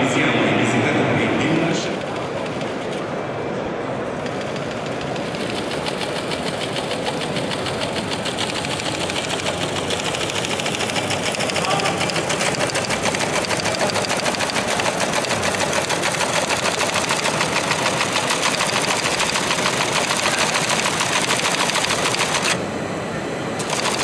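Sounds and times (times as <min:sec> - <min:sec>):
small machine clattering: 0:04.2 - 0:22.6, 0:23.6 - 0:24.0.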